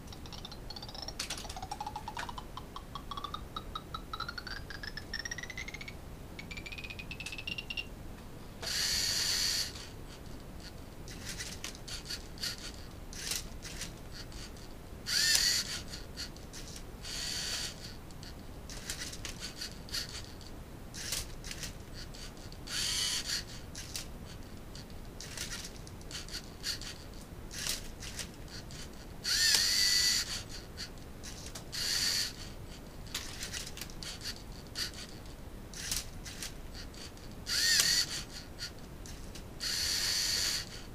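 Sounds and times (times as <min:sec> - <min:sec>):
plastic clicks and clatter: 0:00.1 - 0:02.6
robot motors whirring: 0:08.6 - 0:09.9, 0:11.1 - 0:14.5, 0:15.1 - 0:17.9, 0:21.0 - 0:24.1, 0:25.2 - 0:32.5, 0:35.8 - 0:40.8.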